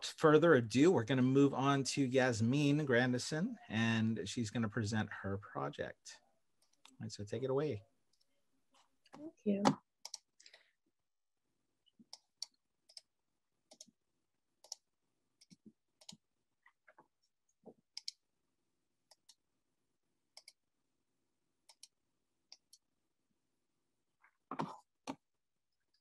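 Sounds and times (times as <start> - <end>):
computer mouse clicks: 10.0 - 10.6, 12.0 - 13.1, 13.7 - 13.9, 14.6 - 16.2, 17.9 - 18.2, 20.3 - 20.6, 21.6 - 22.8.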